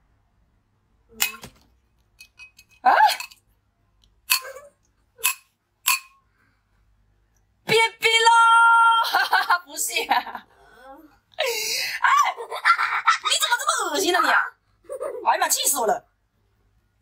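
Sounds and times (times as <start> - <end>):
spoon tapping glass mug: 5.2 - 6.2.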